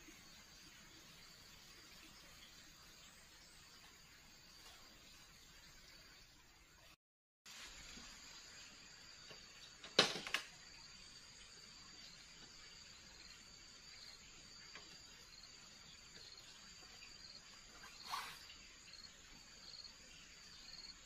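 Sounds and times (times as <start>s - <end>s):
crickets chirping: 7.6s - 21.0s.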